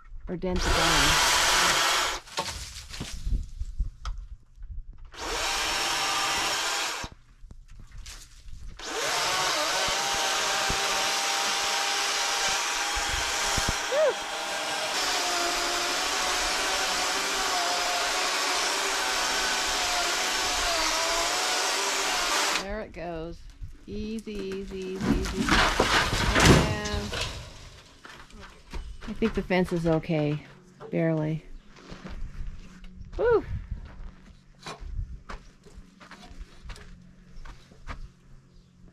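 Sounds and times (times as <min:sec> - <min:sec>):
chainsaw cutting wood: 0:00.5 - 0:02.6, 0:05.1 - 0:07.2, 0:08.8 - 0:22.7, 0:25.0 - 0:27.9.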